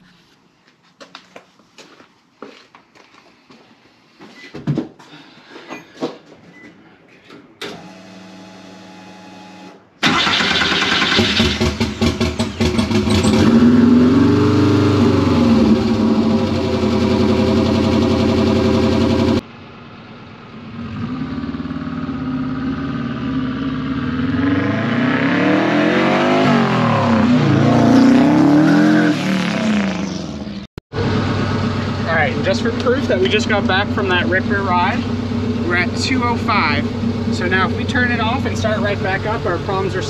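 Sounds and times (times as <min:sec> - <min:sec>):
car engine revving: 0:07.8 - 0:19.4, 0:20.6 - 0:40.0
car accelerating and driving past: 0:13.0 - 0:19.2, 0:20.6 - 0:36.0.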